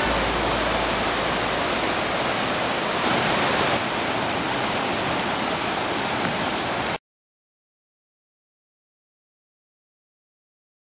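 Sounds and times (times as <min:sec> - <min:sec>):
whitewater rapids rushing: 0:00.0 - 0:07.0.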